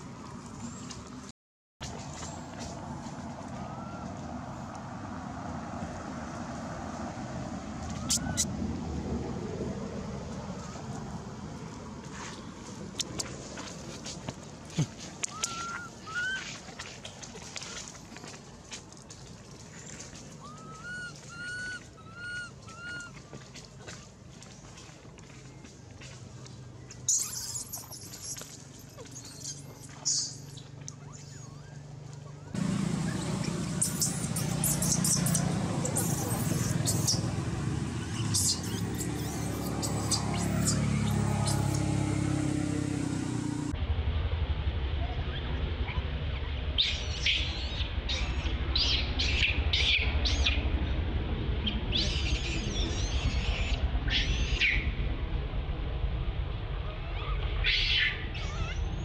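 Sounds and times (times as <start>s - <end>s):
background noise with low hum: 0.0s - 59.0s
infant monkey squealing: 7.9s - 8.5s, 15.3s - 16.5s, 20.4s - 23.2s, 27.1s - 32.5s, 33.8s - 37.3s, 38.0s - 41.9s, 57.1s - 58.8s
steady low rumble: 30.5s - 59.0s.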